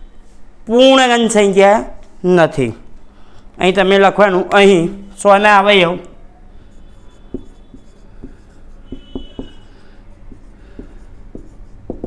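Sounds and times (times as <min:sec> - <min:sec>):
marker squeak: 0:06.5 - 0:12.0
marker writing on whiteboard: 0:06.5 - 0:12.0.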